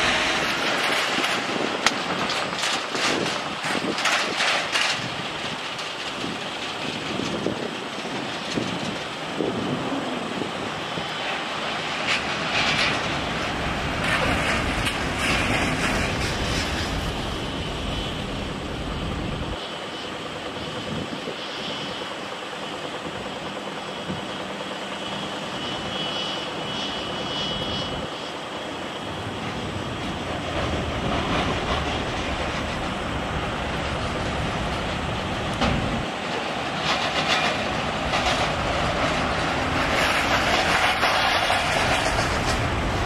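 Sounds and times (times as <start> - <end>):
jet engines rumbling: 0.0 - 43.0
faint high whine: 14.4 - 37.1.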